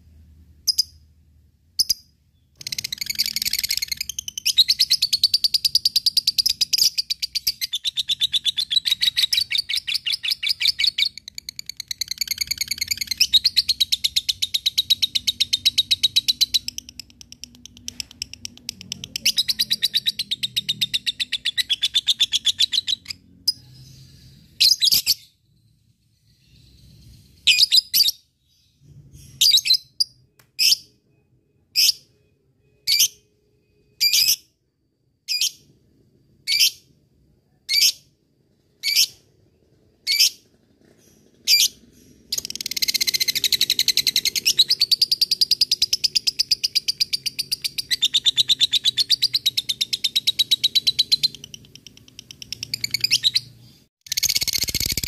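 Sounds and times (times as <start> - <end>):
lovebird rattling trill: 54.1 - 55.0.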